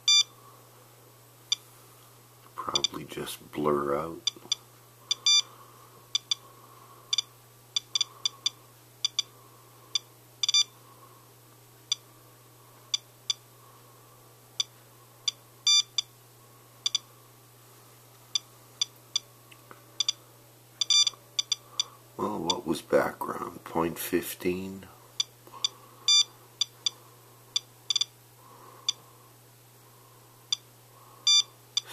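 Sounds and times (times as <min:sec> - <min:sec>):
radiation detector beeping: 0:00.0 - 0:00.3, 0:04.2 - 0:05.5, 0:06.1 - 0:06.5, 0:07.1 - 0:09.3, 0:09.9 - 0:10.8, 0:15.3 - 0:16.1, 0:16.8 - 0:17.1, 0:20.0 - 0:20.2, 0:20.8 - 0:21.9, 0:25.2 - 0:27.0, 0:27.6 - 0:28.2, 0:31.2 - 0:31.9.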